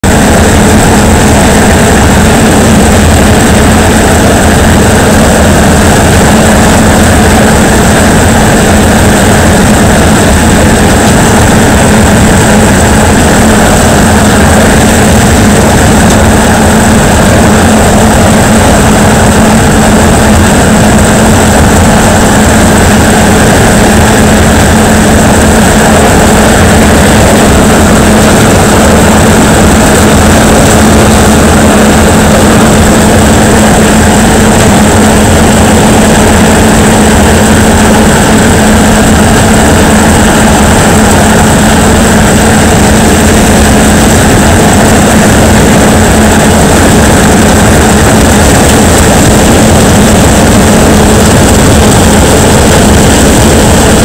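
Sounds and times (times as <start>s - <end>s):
combine harvester engine drone: 0.0s - 54.0s
thin high whine: 0.0s - 54.0s.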